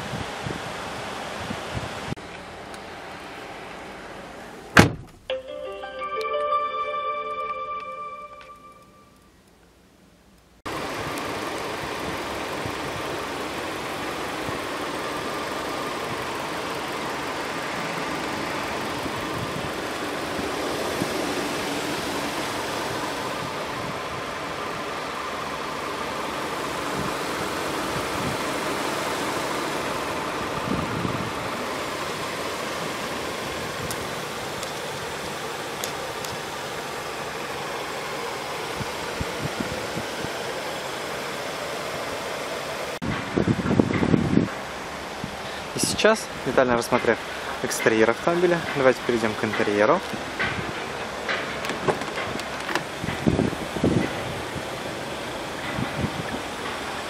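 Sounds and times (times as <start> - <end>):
car engine idling: 10.7 - 39.0.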